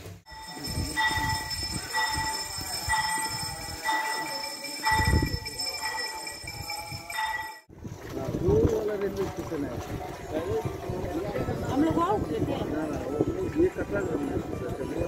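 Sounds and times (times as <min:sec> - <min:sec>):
high-pitched steady tone: 0:00.3 - 0:07.7
metal bell ringing: 0:00.3 - 0:07.7.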